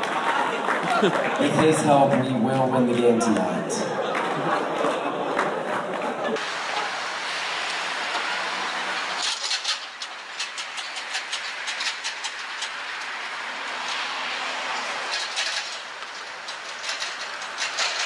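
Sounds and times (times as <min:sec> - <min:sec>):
street traffic hiss: 0:06.4 - 0:18.0.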